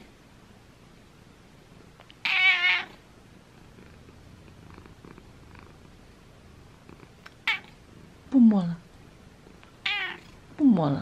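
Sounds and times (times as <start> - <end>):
cat purring: 1.6 - 11.0
cat meowing: 2.2 - 3.0, 7.4 - 7.8, 9.8 - 10.4.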